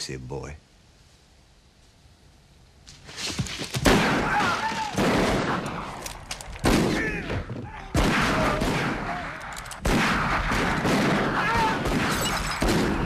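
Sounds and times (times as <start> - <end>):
echoing gunshots: 3.8 - 13.0.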